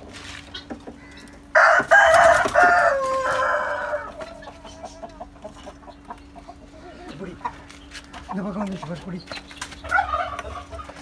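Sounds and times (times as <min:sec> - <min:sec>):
rooster crowing: 0:01.5 - 0:04.2.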